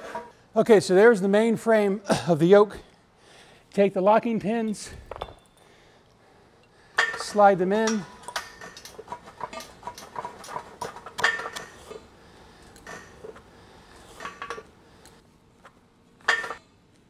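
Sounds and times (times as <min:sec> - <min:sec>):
metal pins clinking on steel frame: 0:04.6 - 0:05.7, 0:06.6 - 0:15.2, 0:16.2 - 0:16.8.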